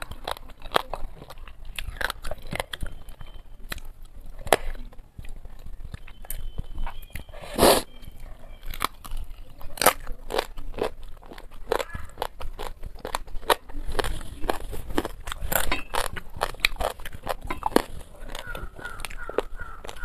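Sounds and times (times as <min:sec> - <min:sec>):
chewing and crunching: 0:00.0 - 0:20.0
wet mouth clicks: 0:06.0 - 0:08.0.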